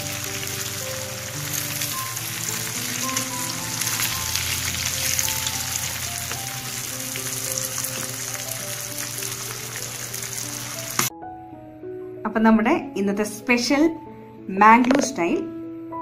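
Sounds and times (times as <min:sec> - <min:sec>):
fish sizzling in hot oil: 0:00.0 - 0:11.1.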